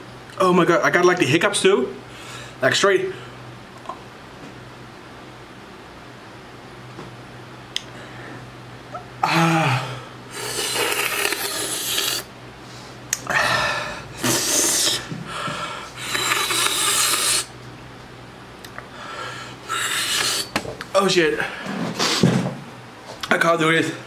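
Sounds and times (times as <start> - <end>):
hissing breaths through mouth: 13.5 - 17.6, 19.4 - 20.6.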